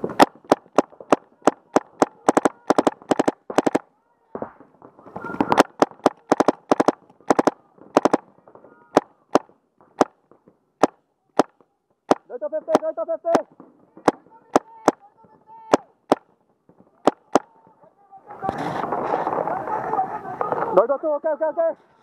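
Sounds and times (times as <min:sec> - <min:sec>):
paintball markers firing: 0:00.0 - 0:15.1, 0:15.7 - 0:16.4, 0:17.0 - 0:17.6.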